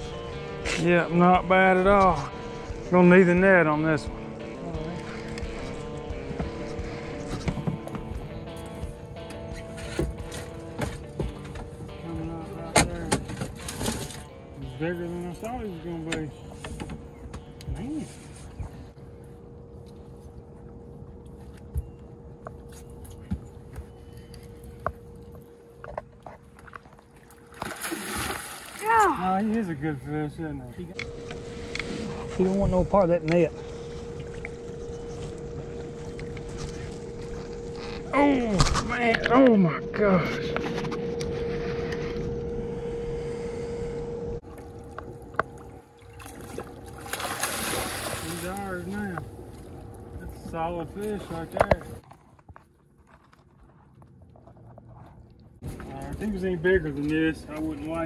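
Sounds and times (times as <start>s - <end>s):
water splashing: 26.4s - 29.4s, 44.4s - 50.4s
electric motor whine: 39.9s - 44.4s.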